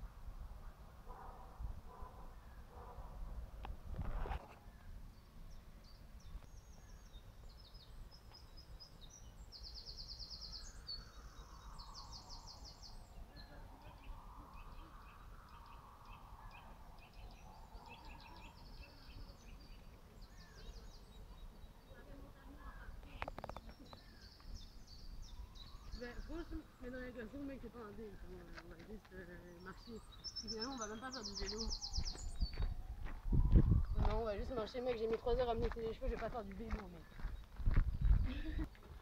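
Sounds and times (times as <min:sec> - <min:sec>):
small birds trilling: 0:04.2 - 0:39.0
broad distant sound: 0:10.7 - 0:37.4.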